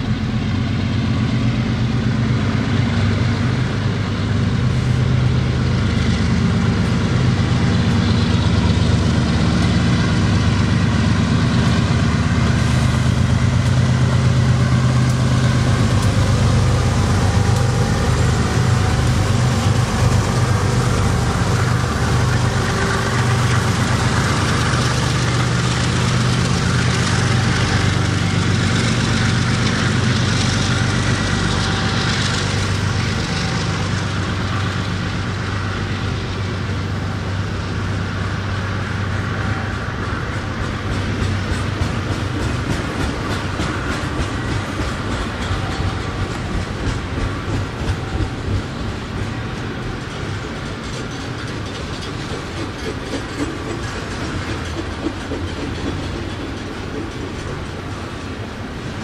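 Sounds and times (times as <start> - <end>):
diesel locomotive engine drone: 0.0 - 59.0
train wheels rumbling on rails: 0.0 - 59.0.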